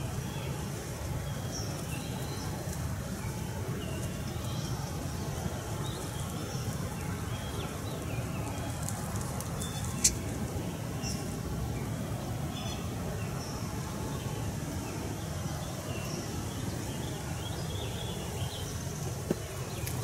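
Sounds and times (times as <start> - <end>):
bird chirps: 9.6 - 10.3.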